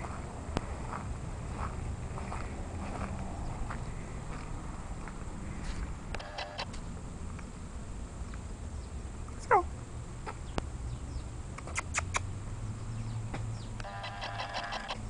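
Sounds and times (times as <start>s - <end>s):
puppy whining: 13.8s - 15.0s.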